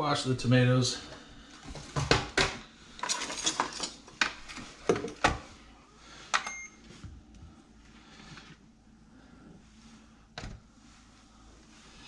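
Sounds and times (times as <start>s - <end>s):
kitchen items clattering at sink: 1.7s - 5.4s
kitchen scale beep: 6.4s - 6.8s.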